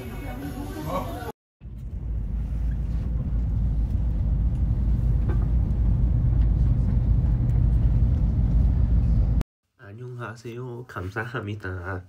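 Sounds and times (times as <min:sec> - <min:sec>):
train rumble inside carriage: 0:01.6 - 0:09.4.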